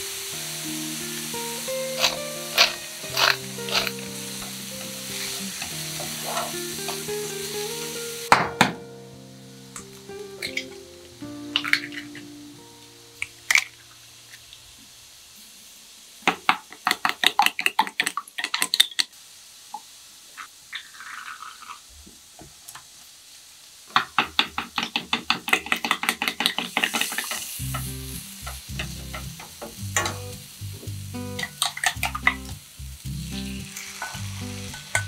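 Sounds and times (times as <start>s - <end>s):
carrots sizzling in a wok: 0.0s - 35.0s
chopsticks beating eggs in bowl: 2.0s - 4.0s.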